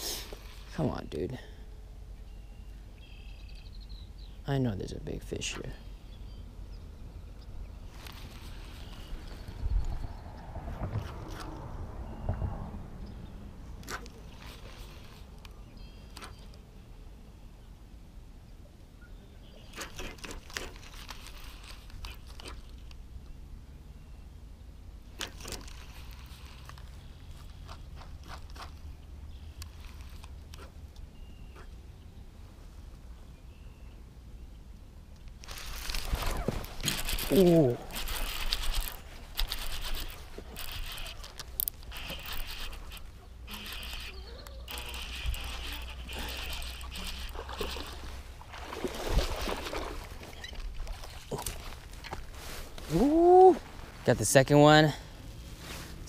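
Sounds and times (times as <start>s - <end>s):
fishing reel clicks and rustles: 7.9s - 10.0s, 13.8s - 16.6s, 19.7s - 23.0s, 25.2s - 28.8s, 29.4s - 30.7s, 35.3s - 48.5s
low rumble on microphone: 8.7s - 13.7s.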